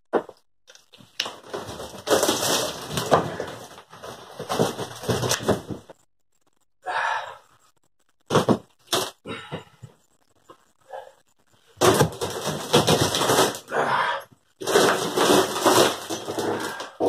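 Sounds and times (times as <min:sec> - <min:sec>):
wood crunching and tearing: 0:00.7 - 0:03.9, 0:11.8 - 0:14.0, 0:14.6 - 0:17.0.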